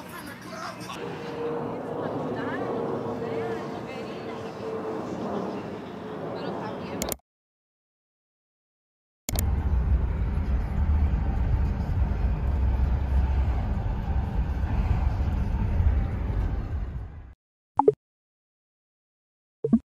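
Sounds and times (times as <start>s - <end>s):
car engine and tyre rumble: 9.3s - 17.3s.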